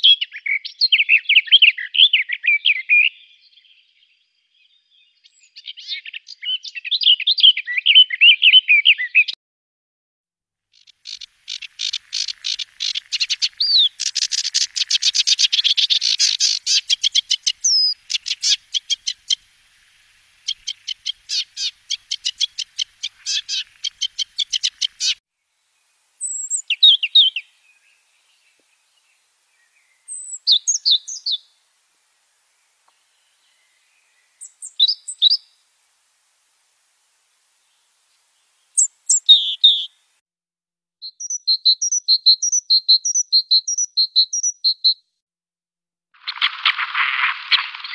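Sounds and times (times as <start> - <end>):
warbler chattering song: 10.7 - 25.2, 26.2 - 31.6, 32.9 - 35.6, 38.4 - 39.9, 41.0 - 45.0
short high bird phrases: 39.1 - 39.9.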